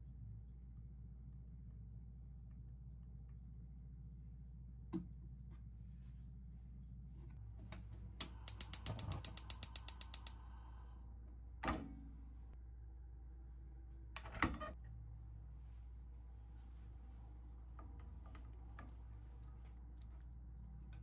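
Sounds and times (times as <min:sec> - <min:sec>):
gas igniter clicking rapidly: 0:08.2 - 0:10.4.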